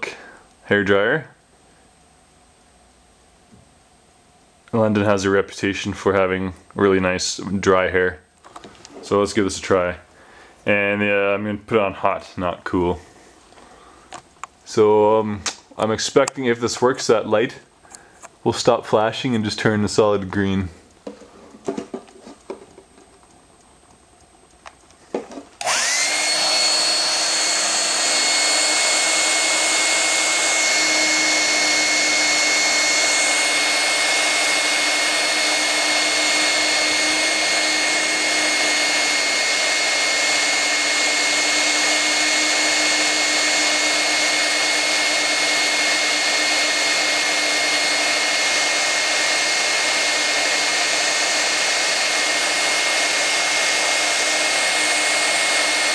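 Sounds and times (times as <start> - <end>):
clicks: 13.4 - 17.1, 17.9 - 37.0
hair dryer running: 25.1 - 55.9.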